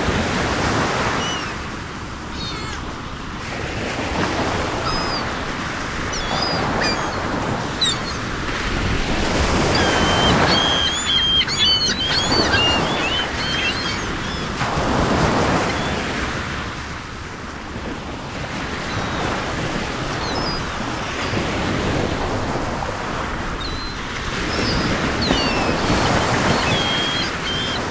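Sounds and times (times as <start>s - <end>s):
surf washing onto shore: 0.0s - 27.9s
small birds chirping: 2.3s - 2.9s, 4.2s - 16.1s, 20.1s - 21.4s, 23.6s - 27.9s.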